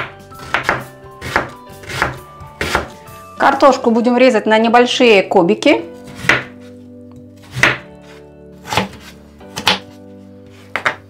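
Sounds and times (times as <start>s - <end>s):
knife cutting potato on wooden board: 0.0s - 3.0s, 6.0s - 6.7s, 7.4s - 11.0s
soft background music: 0.0s - 11.0s.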